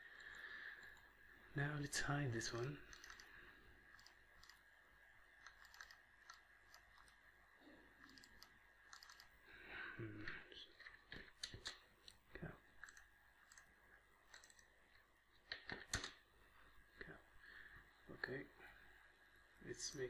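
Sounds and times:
faint electrical whine: 0:00.0 - 0:20.0
computer mouse clicks: 0:02.9 - 0:03.3, 0:03.9 - 0:04.6, 0:05.4 - 0:07.2, 0:08.0 - 0:09.3, 0:12.8 - 0:13.7, 0:14.3 - 0:14.7.

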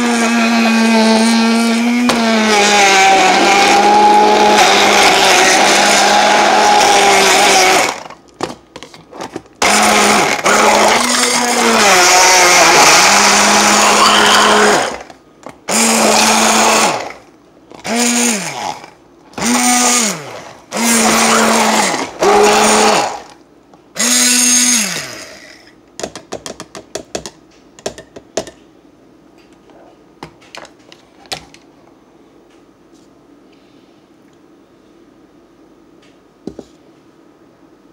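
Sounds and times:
immersion blender blending fruit: 0:00.0 - 0:08.2, 0:09.6 - 0:23.4, 0:24.0 - 0:25.7.

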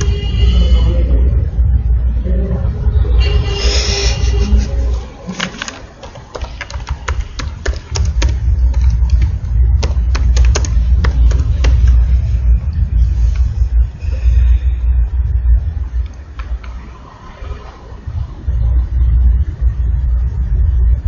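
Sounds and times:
steady low rumble: 0:00.0 - 0:21.0
computer keyboard typing: 0:05.3 - 0:12.0.

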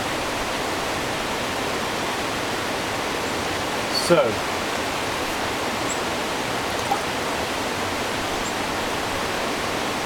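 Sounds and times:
river rushing: 0:00.0 - 0:10.0.

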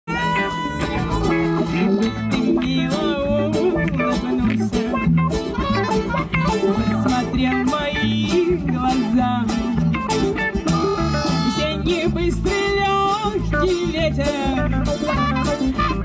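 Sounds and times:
woman singing: 0:00.1 - 0:10.0, 0:11.4 - 0:16.0
guitars: 0:00.1 - 0:16.0
hand drum: 0:00.1 - 0:16.0.

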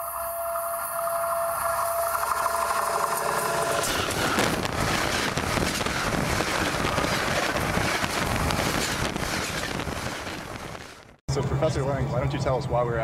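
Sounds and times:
rail car wheels rumbling on track: 0:00.9 - 0:12.8.

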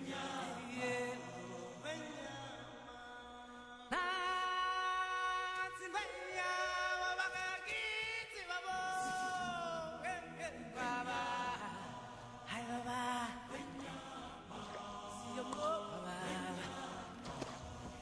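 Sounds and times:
choir answering: 0:00.0 - 0:03.3, 0:08.7 - 0:18.0
man singing lead: 0:00.0 - 0:17.3.

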